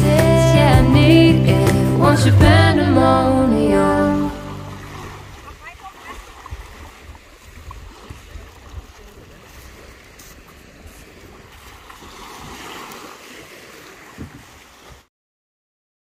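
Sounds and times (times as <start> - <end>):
small waves washing on shore: 4.3 - 15.1
wind buffeting microphone: 5.0 - 12.6, 14.1 - 14.6.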